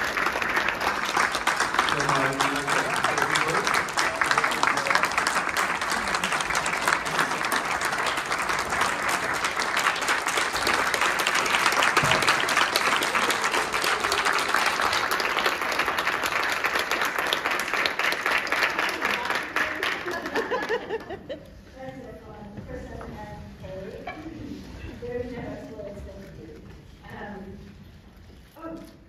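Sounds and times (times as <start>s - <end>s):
crowd applauding: 0.0s - 21.3s.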